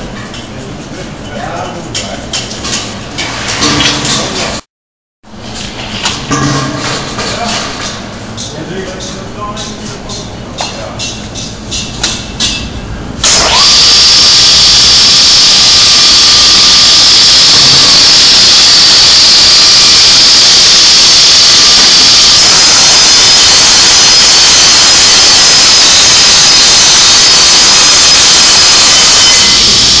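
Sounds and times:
panel saw motor whine: 0:13.2 - 0:30.0
saw cutting a panel: 0:13.2 - 0:30.0.

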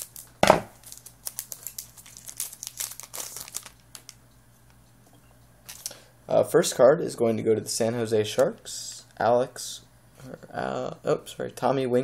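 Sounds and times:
card pack wrapper crinkling: 0:00.0 - 0:04.2, 0:05.7 - 0:06.0.

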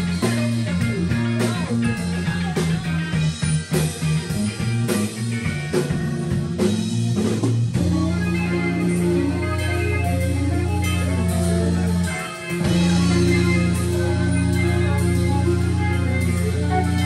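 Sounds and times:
rock band playing: 0:00.0 - 0:17.0
held low guitar chord: 0:07.8 - 0:17.0.

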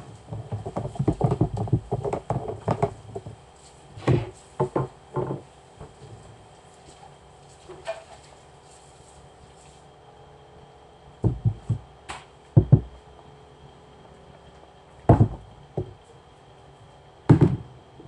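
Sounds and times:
pots knocking on countertop: 0:11.2 - 0:11.8, 0:12.6 - 0:12.9, 0:15.1 - 0:15.9, 0:17.3 - 0:17.6.

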